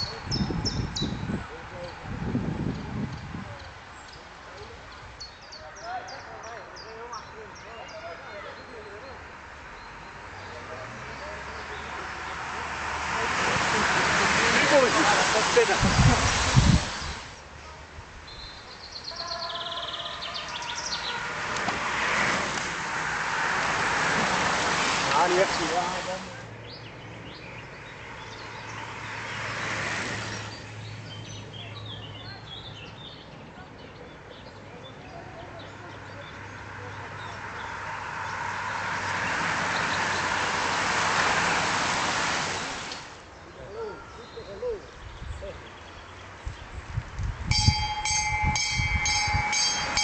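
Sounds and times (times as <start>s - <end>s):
racing bicycles hissing on asphalt: 8.6s - 17.6s, 18.5s - 31.6s, 36.1s - 43.4s.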